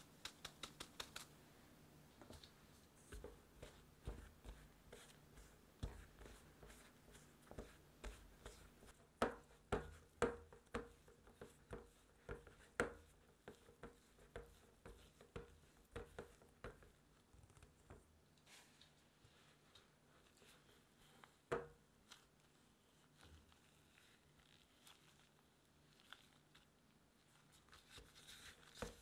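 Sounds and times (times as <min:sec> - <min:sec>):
spatula tapping and scraping bowl: 0:02.3 - 0:17.0.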